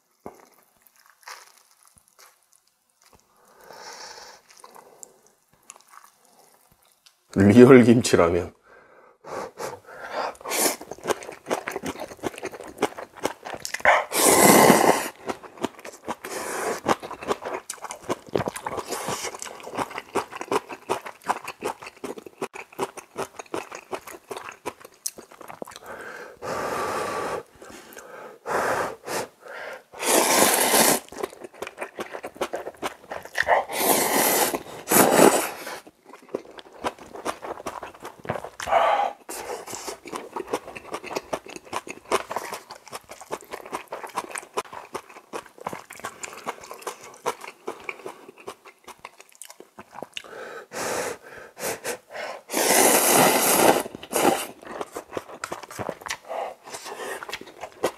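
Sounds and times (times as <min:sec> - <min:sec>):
person chewing: 0:00.0 - 0:07.2, 0:09.5 - 0:28.1, 0:28.9 - 0:57.9
noodle slurping: 0:09.6 - 0:22.2, 0:30.0 - 0:36.0, 0:49.9 - 0:57.9.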